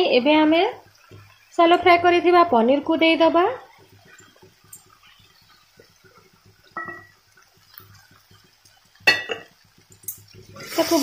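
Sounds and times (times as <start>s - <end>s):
spatula scraping and tapping: 3.6s - 10.6s.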